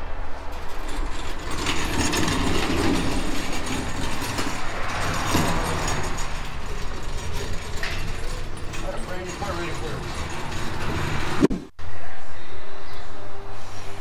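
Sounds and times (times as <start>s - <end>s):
tools clattering on metal: 0.5s - 11.6s.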